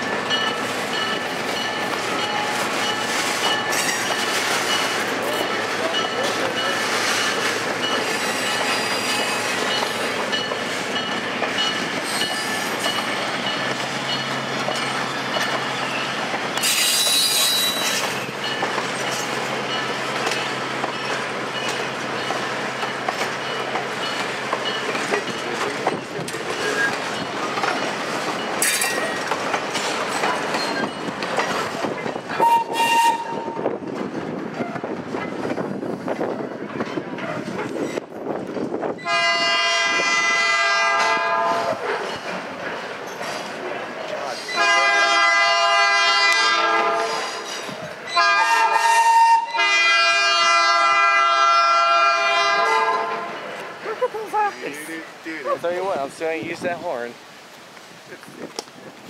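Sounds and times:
wheels clicking over rail joints: 0:00.0 - 0:33.0, 0:57.5 - 0:59.0
train wheel and rail noise: 0:00.0 - 0:59.0
thin wheel squeal: 0:08.1 - 0:09.6, 0:16.6 - 0:18.0.

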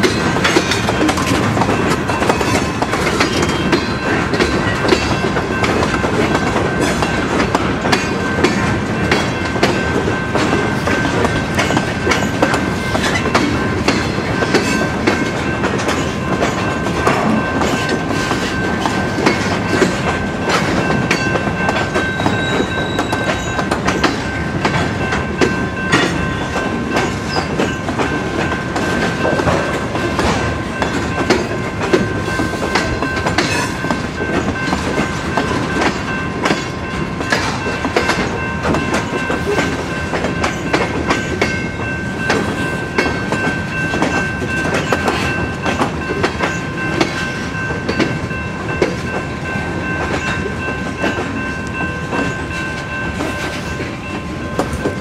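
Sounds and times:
train wheels clattering over rail joints: 0:00.0 - 0:55.0
high ringing tone: 0:16.2 - 0:28.7.

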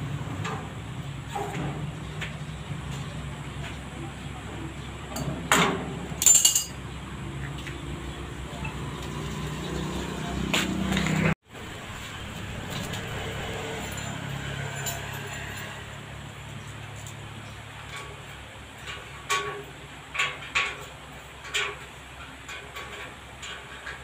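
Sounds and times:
hand tools clanking on steel: 0:05.1 - 0:06.8, 0:13.7 - 0:16.0, 0:16.6 - 0:24.0.

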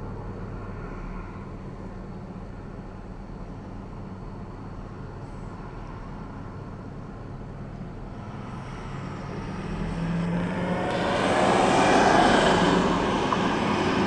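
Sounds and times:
truck engine humming: 0:06.2 - 0:14.0.

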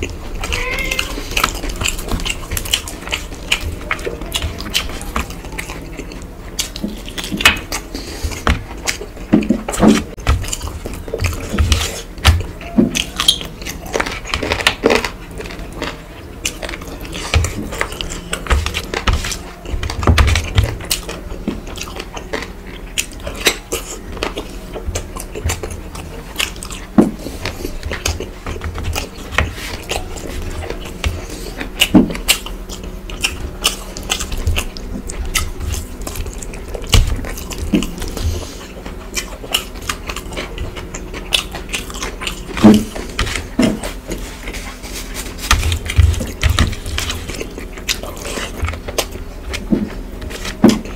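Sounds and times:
chewing and wet mouth sounds: 0:00.0 - 0:50.9.

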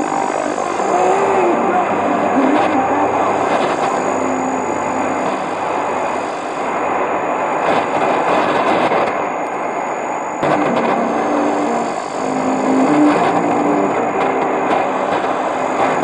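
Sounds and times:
faint music on radio: 0:00.0 - 0:08.9, 0:10.4 - 0:16.0
radio static: 0:00.0 - 0:09.2, 0:10.3 - 0:16.0.

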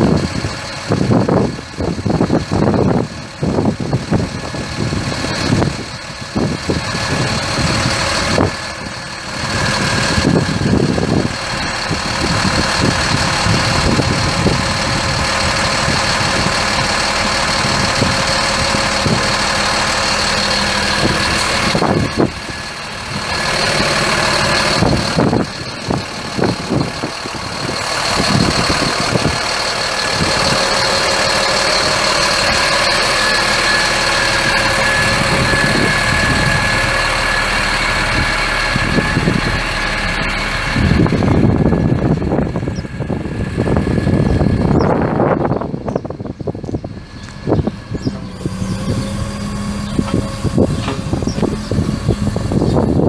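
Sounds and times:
diesel truck engine idling: 0:00.0 - 0:53.0
steady high whine: 0:00.0 - 0:53.0.

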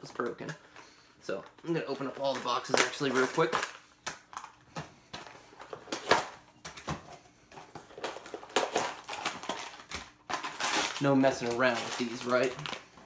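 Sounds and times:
cardboard boxes being torn open: 0:08.0 - 0:12.8.

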